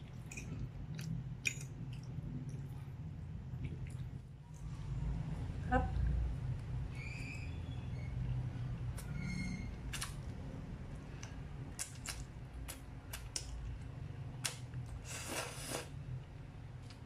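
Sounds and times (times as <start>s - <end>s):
low steady hum: 0.0s - 17.0s
slurping noodles: 15.0s - 15.9s.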